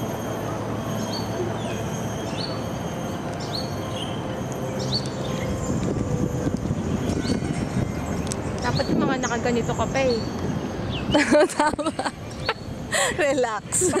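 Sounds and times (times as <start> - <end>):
chairlift running along cable: 0.0 - 14.0
bird chirping: 0.5 - 12.8.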